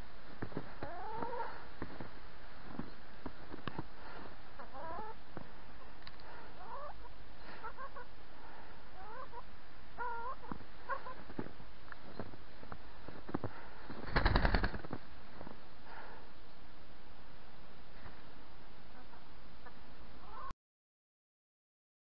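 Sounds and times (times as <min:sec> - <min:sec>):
hens clucking: 0:06.5 - 0:08.2, 0:09.0 - 0:11.3.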